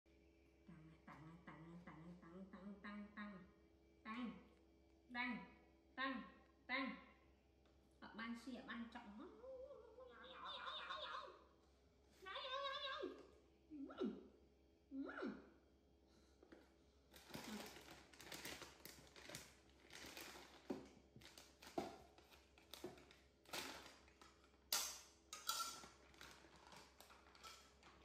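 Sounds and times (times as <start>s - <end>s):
plastic bag crinkling: 17.1s - 24.7s, 25.4s - 28.0s.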